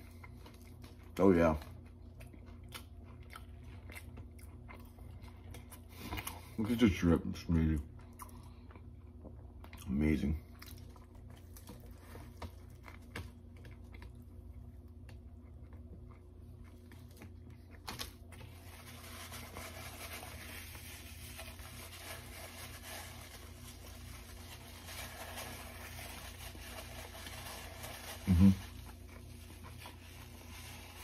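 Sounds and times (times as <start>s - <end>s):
person chewing food: 0.0s - 6.6s, 7.8s - 22.3s
paper napkin rustling: 17.9s - 31.0s.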